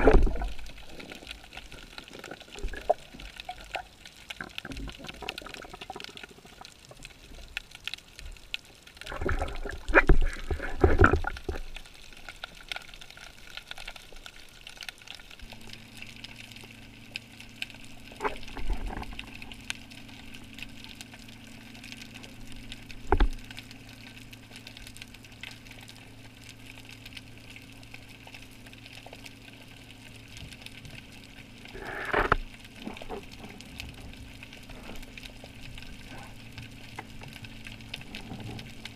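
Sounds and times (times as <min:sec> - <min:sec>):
muffled underwater ambience: 0:00.0 - 0:38.9
water splashing and bubbling: 0:00.0 - 0:38.9
steady low hum: 0:13.2 - 0:38.9.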